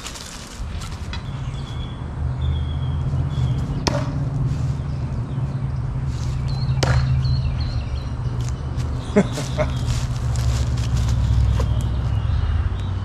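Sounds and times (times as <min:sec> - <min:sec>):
knives striking wooden post: 0:03.8 - 0:04.2, 0:06.8 - 0:07.2.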